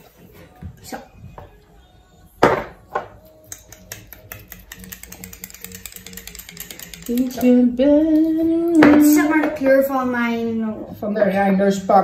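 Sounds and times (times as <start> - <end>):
bottle being shaken clicking: 3.5 - 7.6.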